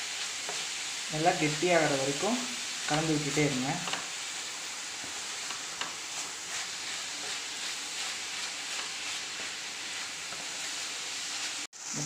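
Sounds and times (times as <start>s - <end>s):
sizzling hiss: 0.0s - 12.0s
wooden spatula scraping a pan: 2.8s - 11.7s.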